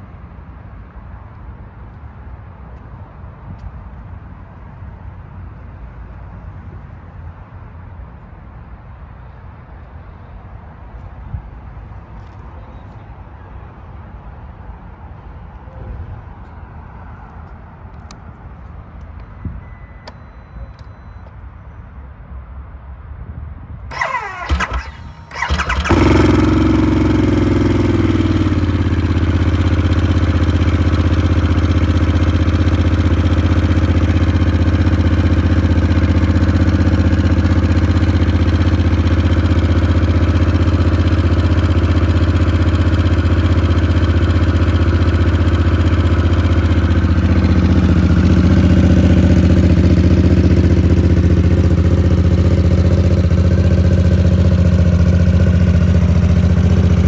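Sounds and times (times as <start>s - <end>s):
motorcycle starter cranking: 23.9s - 27.1s
motorcycle engine idling: 23.9s - 57.0s.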